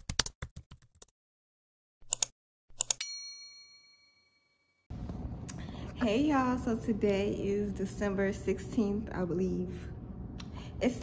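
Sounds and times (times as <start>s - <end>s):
keyboard typing clicks: 2.0s - 3.0s
bright bell-like ding: 3.0s - 4.5s.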